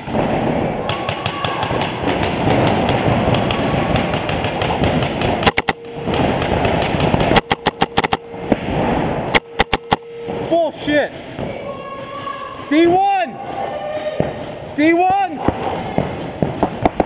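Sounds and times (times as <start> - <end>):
paintball markers firing: 0.1 - 8.2
nearby paintball marker shots: 0.9 - 8.2.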